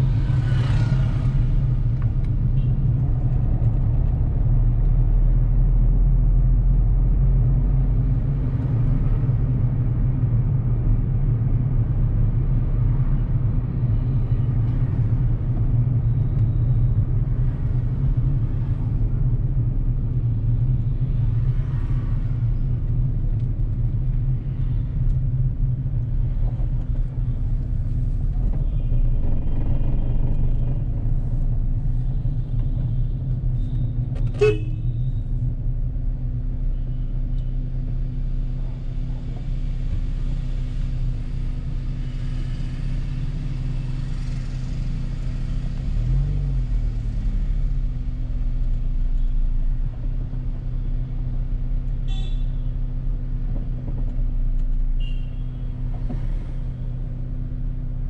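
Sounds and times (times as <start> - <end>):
car engine and road rumble: 0.0 - 58.0
car horns tooting: 34.4 - 34.8.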